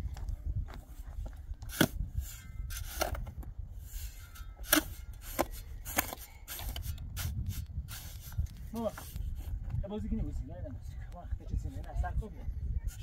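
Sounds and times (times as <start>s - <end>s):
shovel scraping gravelly soil: 1.7s - 3.2s, 3.8s - 9.2s.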